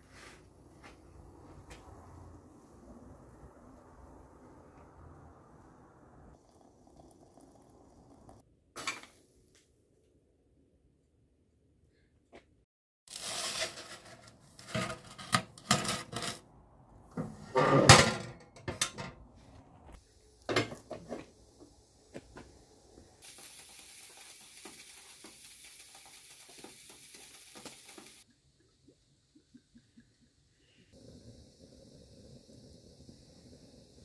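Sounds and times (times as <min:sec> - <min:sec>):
metal cookware clattering: 0:13.4 - 0:16.4, 0:17.2 - 0:19.2
faint hiss: 0:20.0 - 0:28.2, 0:30.4 - 0:34.0.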